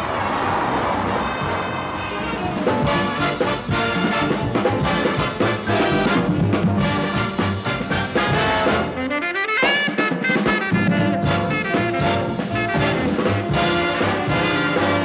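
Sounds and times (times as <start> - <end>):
horn run climbing: 0.6 - 15.0
swing jazz band: 2.1 - 15.0.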